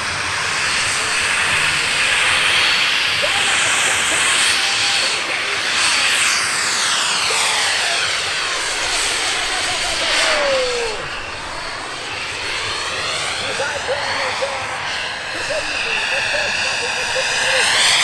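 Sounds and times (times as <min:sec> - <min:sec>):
model jet turbine hiss: 0:00.0 - 0:18.0.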